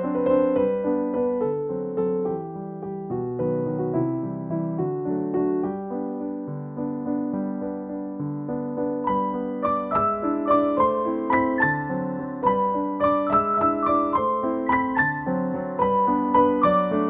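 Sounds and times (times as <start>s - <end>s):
gentle piano melody: 0.0s - 17.0s.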